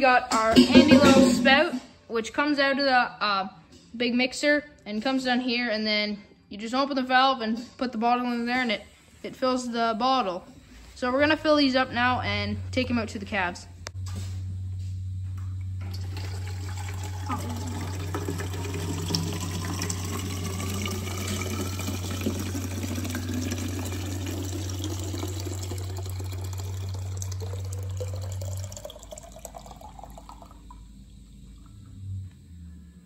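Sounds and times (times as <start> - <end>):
steady low hum: 7.2 - 33.0
liquid pouring into plastic bottle: 15.8 - 30.8.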